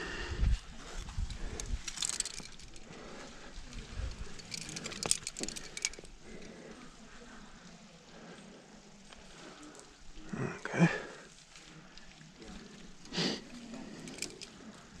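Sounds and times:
carabiners clinking and jangling: 0:01.2 - 0:06.6, 0:13.6 - 0:15.0.

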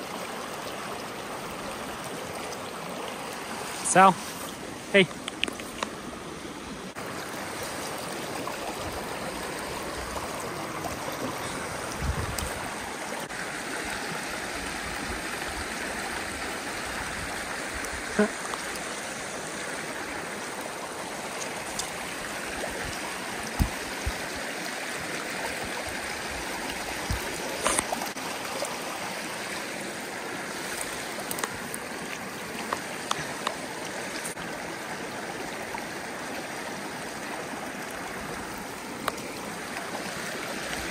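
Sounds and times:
creek burbling over stones: 0:00.0 - 0:40.9.

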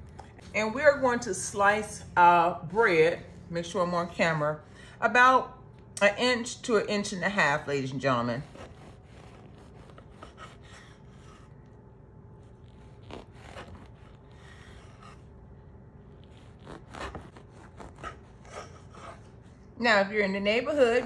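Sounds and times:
knife sawing through bread: 0:07.8 - 0:11.6, 0:12.4 - 0:19.5.

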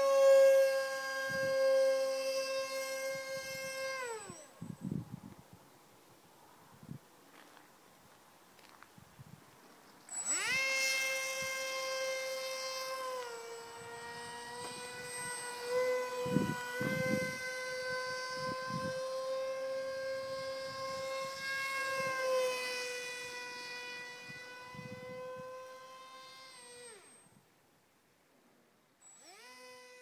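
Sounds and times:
model jet electric motor whine: 0:00.0 - 0:05.2, 0:10.0 - 0:27.5, 0:29.0 - 0:30.0.

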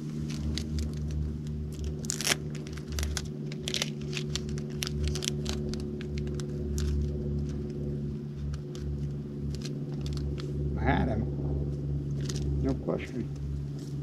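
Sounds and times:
electric motor hum: 0:00.0 - 0:14.0
sharp clicks and crackles: 0:00.1 - 0:10.6, 0:12.1 - 0:12.7.

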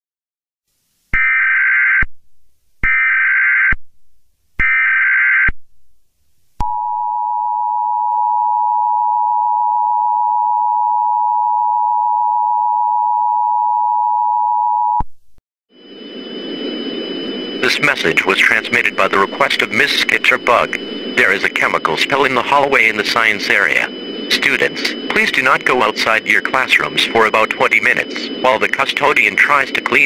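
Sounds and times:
two-tone attention signal: 0:15.8 - 0:30.0
digital header bursts: 0:17.2 - 0:30.0.

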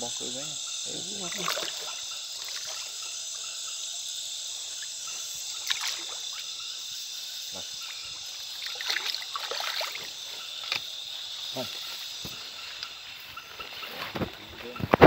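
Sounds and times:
night insects chorus: 0:00.0 - 0:15.0
shallow water splashing: 0:01.2 - 0:03.1, 0:05.5 - 0:06.5, 0:07.9 - 0:10.8.

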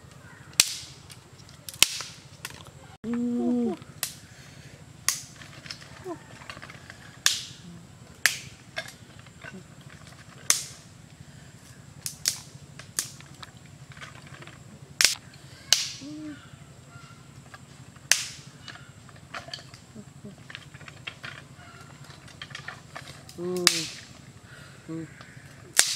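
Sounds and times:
dry sticks snapping: 0:00.1 - 0:02.8, 0:03.8 - 0:04.3, 0:05.0 - 0:16.2, 0:17.4 - 0:24.3, 0:25.1 - 0:25.9
sticks clicking onto pile: 0:00.5 - 0:02.7, 0:08.2 - 0:10.8, 0:12.0 - 0:16.1, 0:17.5 - 0:24.2.

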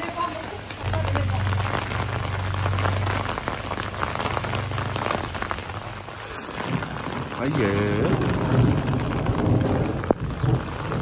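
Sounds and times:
rain on hard surfaces: 0:00.0 - 0:11.0
low steady hum: 0:00.8 - 0:05.9.

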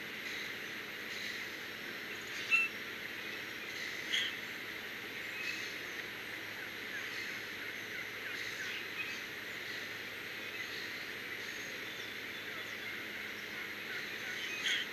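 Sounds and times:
steady background hiss: 0:00.0 - 0:14.9
songbird chirps and calls: 0:00.2 - 0:06.2, 0:06.9 - 0:14.9.

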